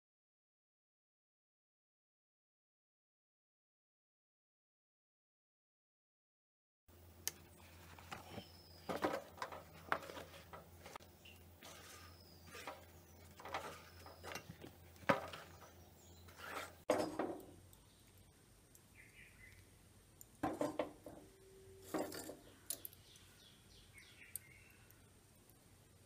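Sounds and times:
handling knocks and clatter: 7.8 - 17.6, 20.4 - 22.5
low hum: 21.0 - 23.7.

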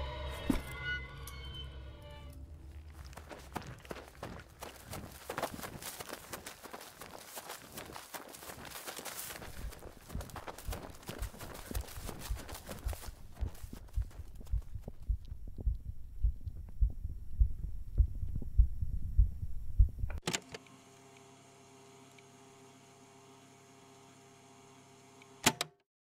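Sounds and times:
dull low thumps: 9.4 - 20.2.

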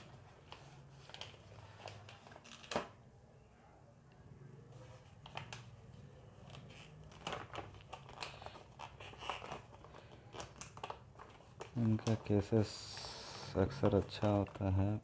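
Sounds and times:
plastic pouch crinkling: 6.4 - 15.0.

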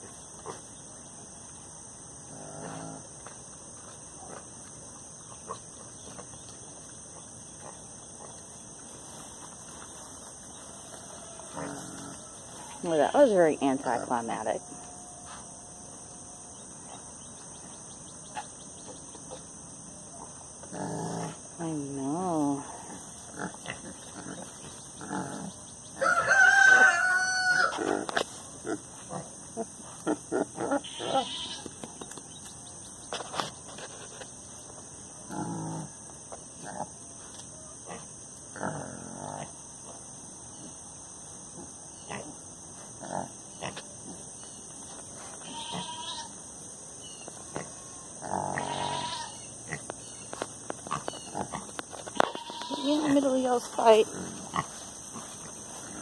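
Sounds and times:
pigs grunting: 2.3 - 3.2, 11.5 - 12.4, 20.6 - 21.5, 22.5 - 25.6, 27.5 - 31.6, 35.2 - 36.0, 36.6 - 37.0, 37.8 - 39.6, 41.5 - 44.3, 47.5 - 49.9, 50.8 - 56.0.

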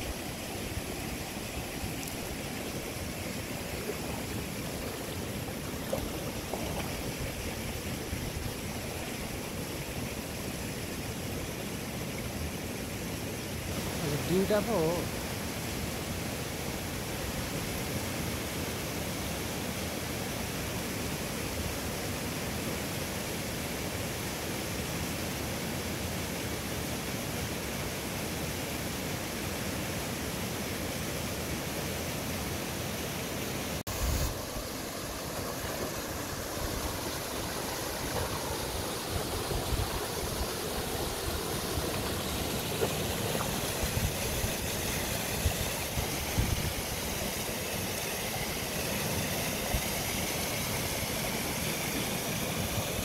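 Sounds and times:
river rushing: 0.0 - 53.0.

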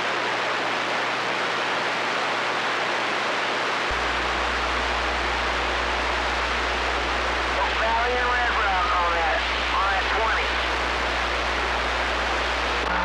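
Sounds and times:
radio static hiss: 0.0 - 13.0
low steady hum: 3.8 - 13.0.

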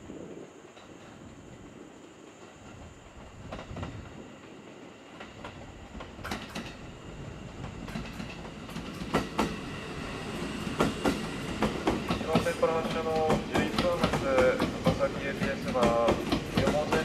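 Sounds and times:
electric train rumbling past: 0.0 - 17.0
wheels clacking over rail joints: 5.2 - 17.0.

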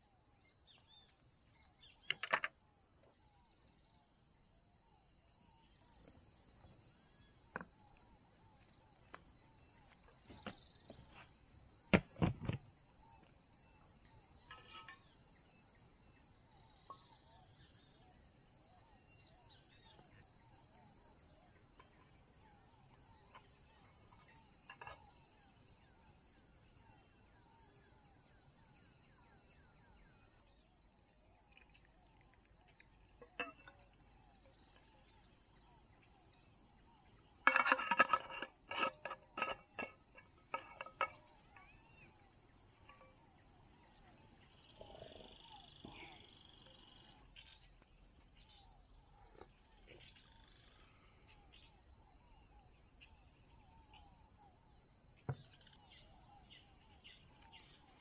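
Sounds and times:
high-pitched insect chorus: 0.0 - 58.0
sharp knocks and clicks: 2.0 - 2.5, 11.9 - 12.6.

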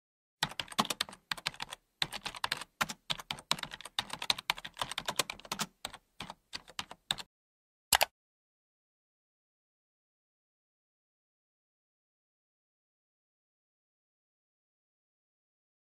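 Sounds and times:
computer keyboard typing: 0.4 - 7.3, 7.9 - 8.1.

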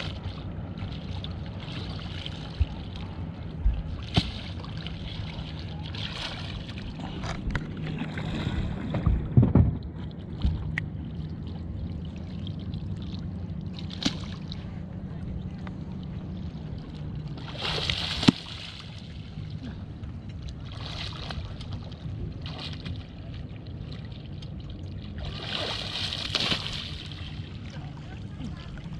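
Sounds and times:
water splashing: 0.0 - 9.5, 10.1 - 14.7, 16.4 - 28.9
boat motor idling: 0.0 - 28.9
knocks and thumps on boat: 1.6 - 11.0, 17.4 - 18.6.

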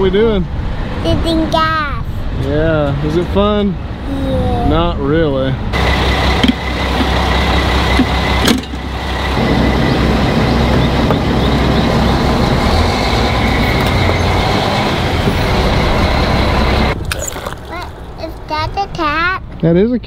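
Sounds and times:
low hum: 4.9 - 17.2.

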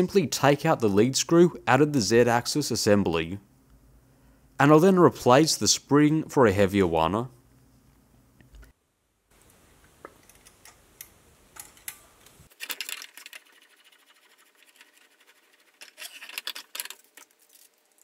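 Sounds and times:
faint clicks of small parts: 9.4 - 13.5, 15.8 - 18.0.

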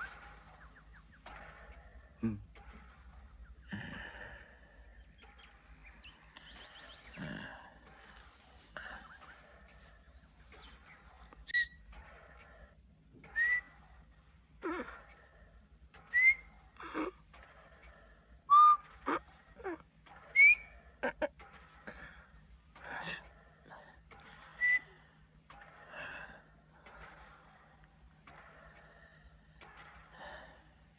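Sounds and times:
faint low hum: 0.0 - 30.9
rising whistle-like chirps: 13.3 - 13.7, 16.0 - 16.5, 18.5 - 18.9, 20.4 - 20.7.

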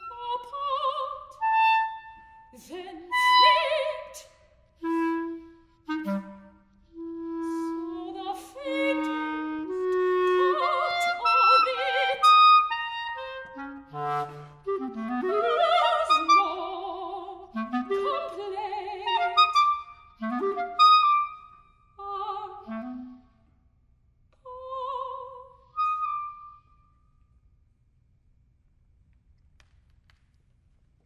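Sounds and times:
clarinet phrases: 0.0 - 4.2, 4.8 - 23.4, 25.2 - 26.6
soprano singing with vibrato: 0.0 - 5.0, 7.4 - 13.6, 14.8 - 19.9, 22.0 - 23.2, 24.4 - 26.3.

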